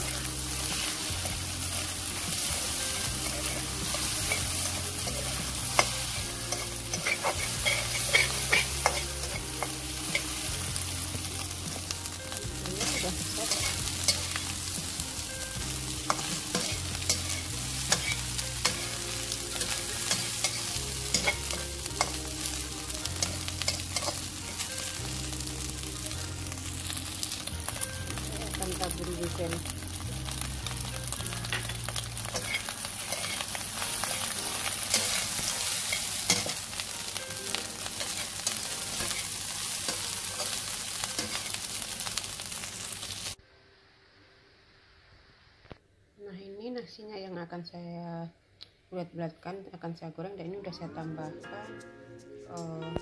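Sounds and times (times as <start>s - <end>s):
rice sizzling in a wok: 0.0s - 43.4s
metal spatula scraping a pan: 2.9s - 10.3s, 16.1s - 22.2s, 31.5s - 36.6s.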